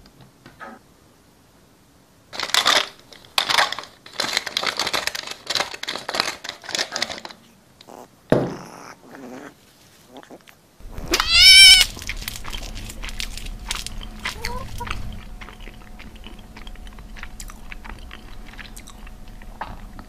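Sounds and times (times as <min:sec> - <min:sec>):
pepper mill grinding: 0:10.9 - 0:19.8
shrill creature screech: 0:11.1 - 0:11.9.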